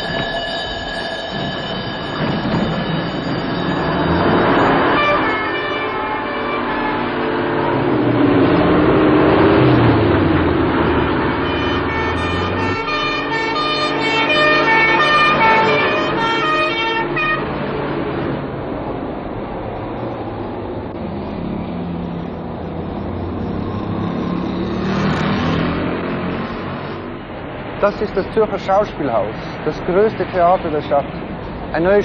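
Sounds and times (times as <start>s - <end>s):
fire engine siren: 0.0s - 18.4s.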